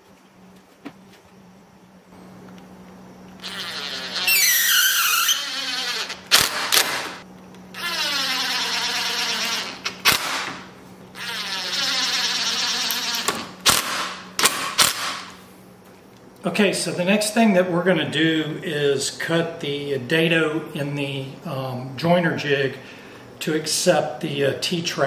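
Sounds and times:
cordless drill drilling wood: 3.4s - 7.2s, 7.8s - 10.5s, 11.2s - 14.1s.

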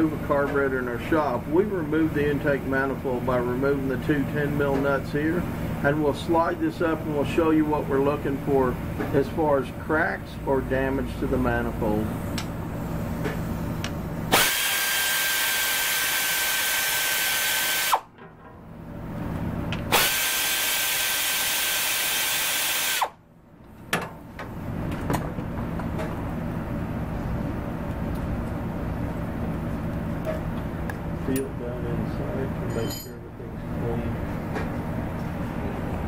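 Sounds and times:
power tool high whine: 14.3s - 18.1s, 19.9s - 23.2s.

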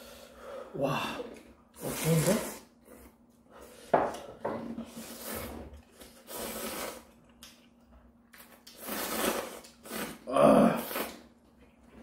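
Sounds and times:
noodles being slurped: 1.8s - 2.7s, 4.9s - 7.4s, 8.4s - 11.4s.

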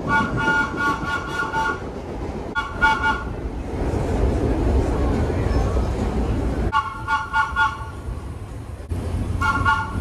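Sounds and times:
train horn short toots: 0.0s - 1.8s, 9.4s - 10.0s
train rumbling on track: 0.0s - 10.0s.

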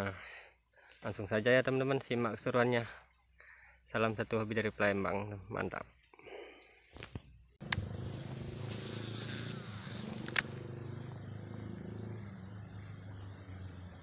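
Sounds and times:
low engine-like hum: 7.6s - 14.0s
spinning reel click: 8.9s - 10.9s.

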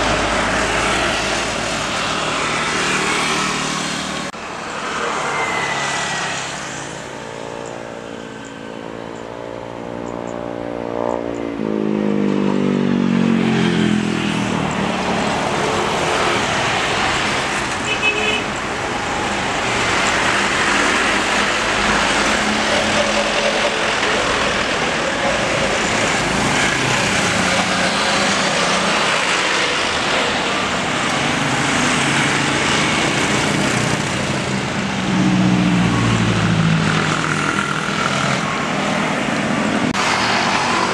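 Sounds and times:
jet engine roar: 0.0s - 7.5s, 18.7s - 40.9s.

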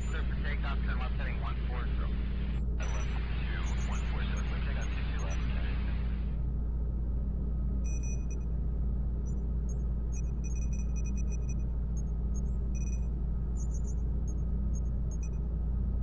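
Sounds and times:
deep hum: 2.0s - 16.0s
high electronic beeps and chirps: 2.6s - 5.4s, 7.9s - 8.4s, 9.3s - 15.4s.

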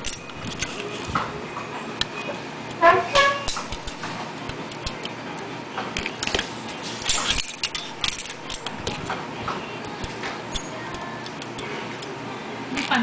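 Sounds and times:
metallic clicks of clutch parts: 7.0s - 9.1s.

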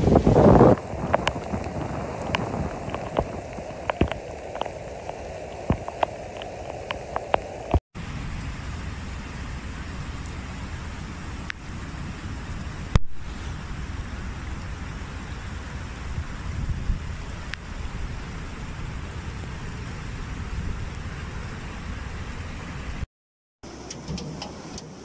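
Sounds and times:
sharp ticks of raindrops: 0.0s - 7.8s, 10.2s - 10.5s
rushing floodwater: 0.0s - 22.8s
heavy rain: 0.0s - 23.1s.

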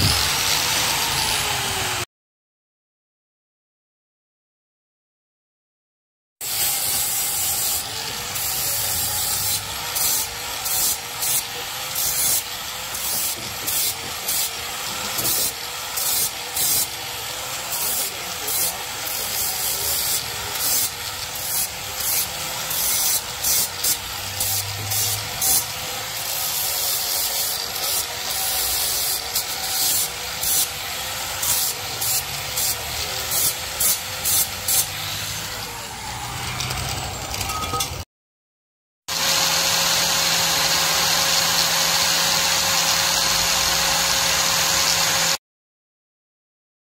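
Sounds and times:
sanding scraping on steel: 6.4s - 35.5s.

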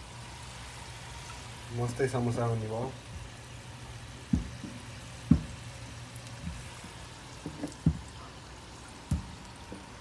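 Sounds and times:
dull kitchen knocks: 4.3s - 5.6s, 7.4s - 8.1s.

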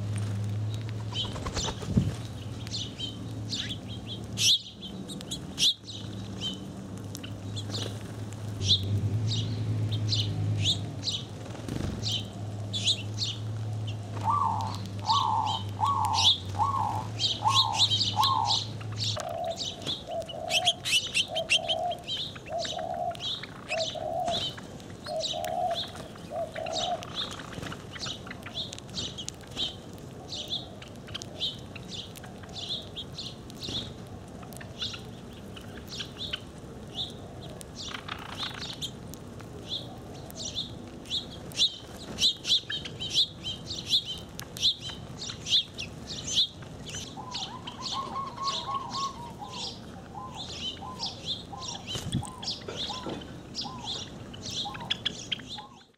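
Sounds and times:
small birds chirping: 0.0s - 55.9s
dove cooing: 13.9s - 28.8s, 46.4s - 55.9s.

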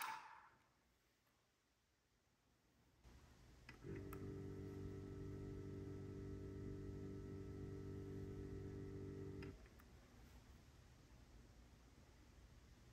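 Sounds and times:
pump running with low hum: 3.7s - 9.6s.

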